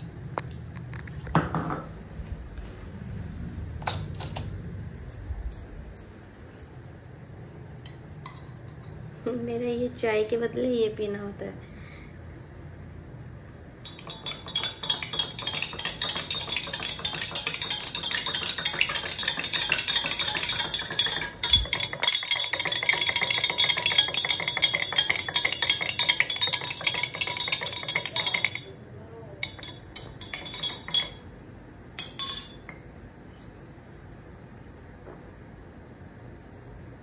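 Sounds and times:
spoon clinking in a cup: 13.8 - 28.8, 29.4 - 31.2, 32.0 - 32.8.

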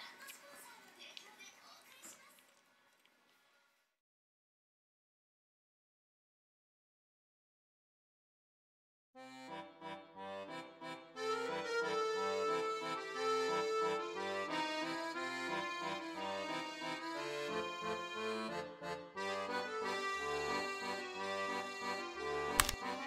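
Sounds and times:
playful instrumental music: 9.2 - 23.0.

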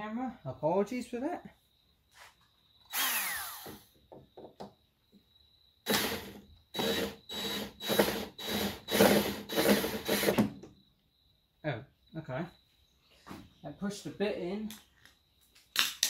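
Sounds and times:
cordless drill running: 2.9 - 3.8, 5.8 - 10.5.

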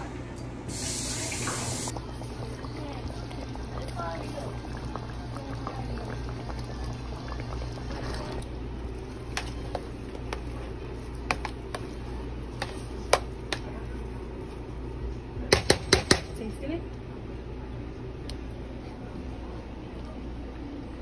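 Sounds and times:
gravy bubbling in a pot: 1.9 - 16.2
spoon stirring mashed potatoes: 7.5 - 15.0.

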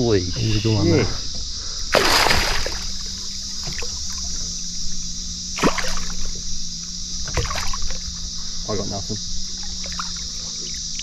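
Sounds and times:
water sloshing against boat: 0.4 - 11.0
water splash: 1.9 - 3.9, 5.6 - 6.3, 7.3 - 8.0.

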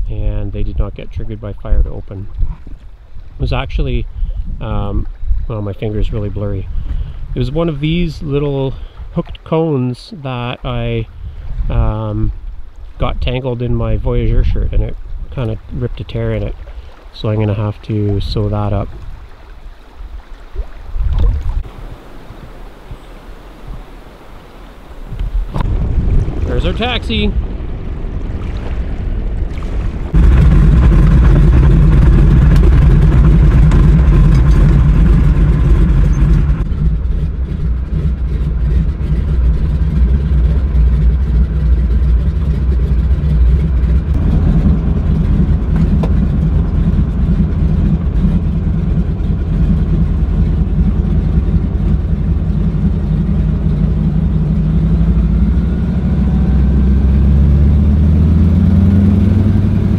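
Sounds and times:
floatplane piston engine running: 30.1 - 59.9.

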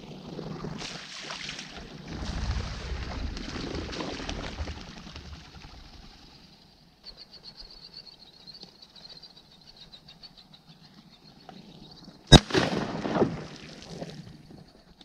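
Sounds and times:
shotgun shot: 12.3 - 13.5.

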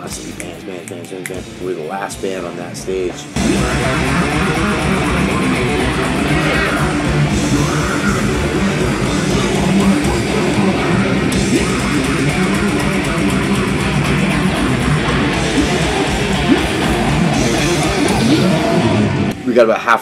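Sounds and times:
distorted electric guitars: 0.0 - 19.7
drums: 0.0 - 20.0.

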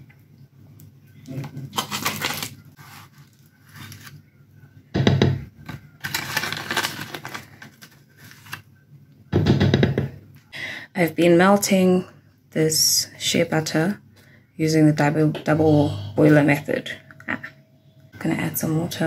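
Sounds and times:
foil pouch crinkling: 1.6 - 4.2, 6.0 - 8.7.

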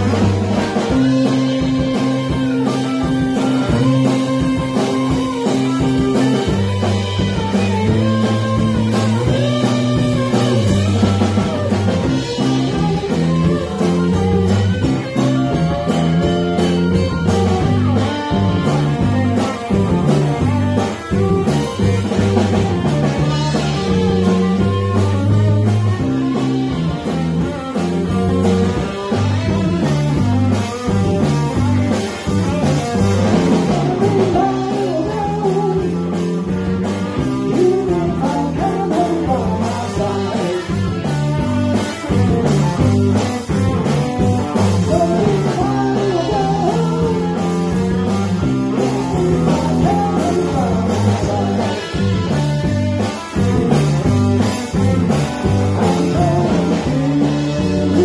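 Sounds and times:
drum kit: 0.0 - 58.0
electric guitars: 0.0 - 58.0
man singing: 33.4 - 36.4, 37.2 - 41.1, 44.8 - 47.8, 48.7 - 52.2, 55.7 - 58.0.

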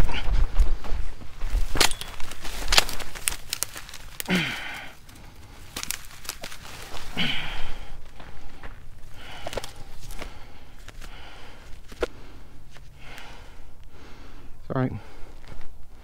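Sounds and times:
footsteps crunching on dry ground: 0.0 - 14.3, 14.9 - 16.0
dry grass rustling: 0.3 - 14.5, 15.1 - 16.0
dry twigs snapping: 1.5 - 13.4
short low grunt: 4.2 - 4.9, 7.1 - 7.9.

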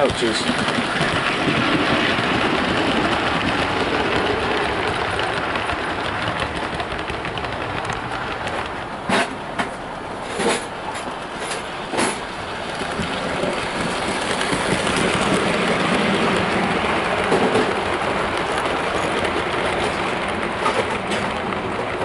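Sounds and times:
model train wheels rumbling: 0.0 - 22.0.

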